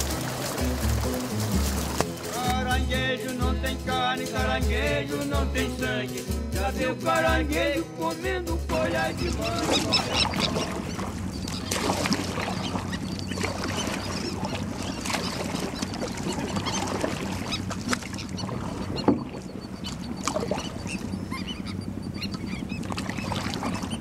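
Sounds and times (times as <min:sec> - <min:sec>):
boat motor hum: 0:00.0 - 0:24.0
terns calling: 0:00.0 - 0:24.0.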